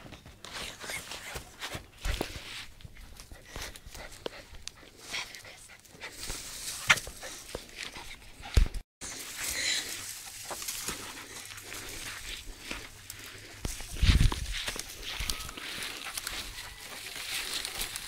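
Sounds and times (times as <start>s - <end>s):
dog panting: 2.0s - 6.4s.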